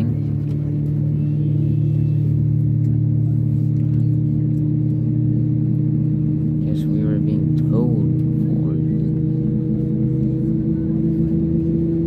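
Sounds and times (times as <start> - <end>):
aircraft cabin droning hum: 0.0 - 12.0.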